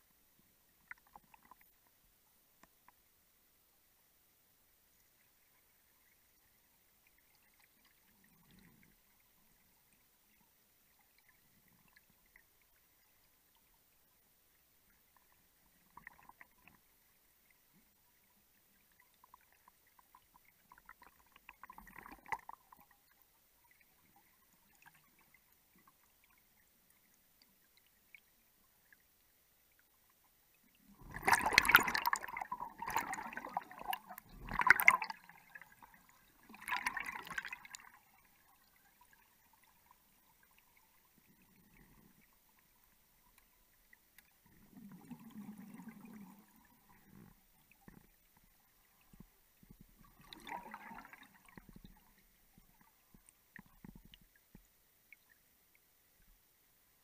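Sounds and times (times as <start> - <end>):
faint underwater ticks: 0.0 - 57.0
gas bubbles gurgling underwater: 30.8 - 39.7, 44.4 - 54.3.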